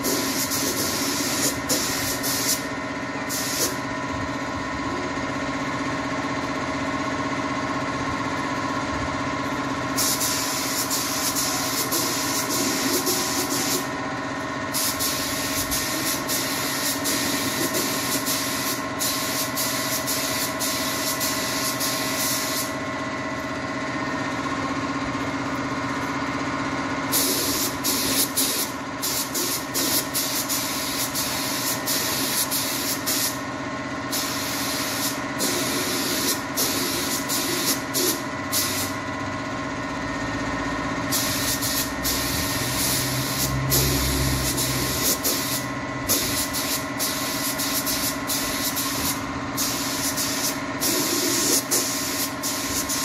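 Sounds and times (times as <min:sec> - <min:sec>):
spray gun hissing: 0:00.0 - 0:02.7, 0:03.3 - 0:03.8, 0:10.0 - 0:13.9, 0:14.7 - 0:22.7, 0:27.1 - 0:33.4, 0:34.1 - 0:39.0, 0:41.1 - 0:53.0.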